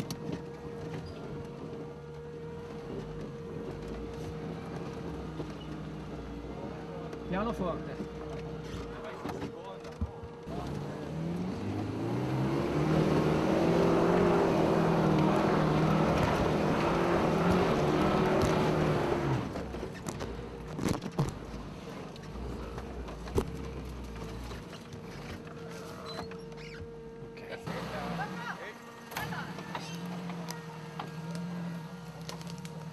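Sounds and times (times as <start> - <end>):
off-road vehicle engine pulling: 0.0 - 32.9.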